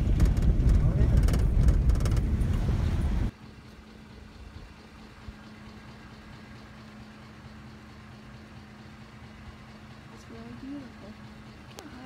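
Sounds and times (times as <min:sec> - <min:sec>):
crackles: 0:00.0 - 0:02.6
car cabin rumble on dirt road: 0:00.0 - 0:12.0.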